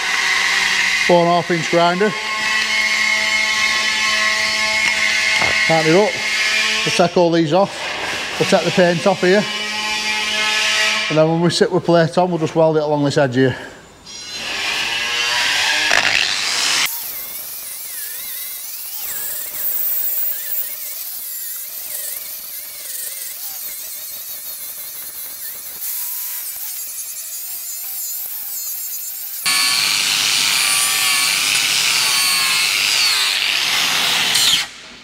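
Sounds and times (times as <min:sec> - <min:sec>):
angle grinder buffing steel: 0:00.0 - 0:11.4, 0:14.1 - 0:34.8.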